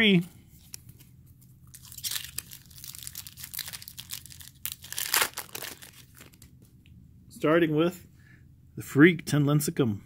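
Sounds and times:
foil wrapper tearing and crinkling: 1.7 - 6.5.

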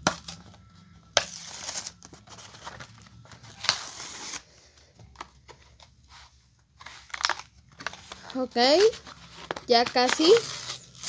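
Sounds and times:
blister pack crinkling and tearing: 7.0 - 11.0.

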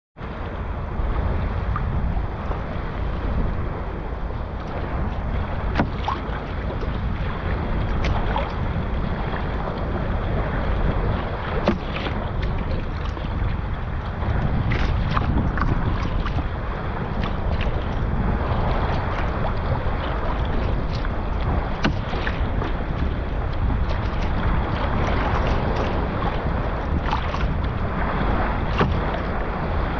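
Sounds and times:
water splashing around kayak: 0.2 - 29.9
wind buffeting microphone: 0.2 - 29.9
short splashes and drips: 18.6 - 29.4.

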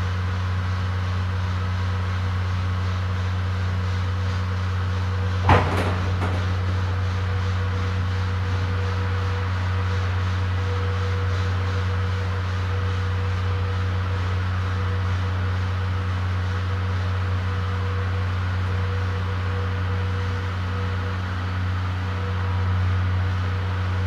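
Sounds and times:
diesel generator droning: 0.0 - 24.0.

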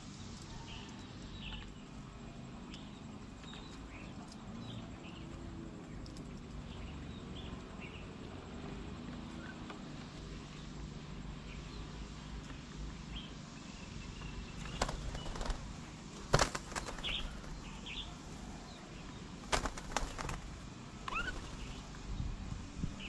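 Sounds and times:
bird wings flapping: 14.6 - 18.4, 19.4 - 22.0
short rising bird chirps: 21.0 - 21.9.

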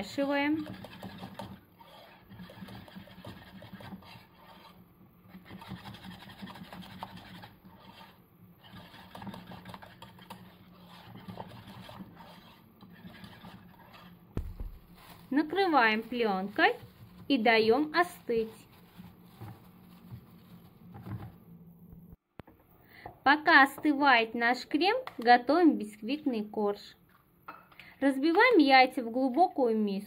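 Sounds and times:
whisk stirring in metal saucepan: 0.2 - 14.2
short thump: 14.4 - 15.0.

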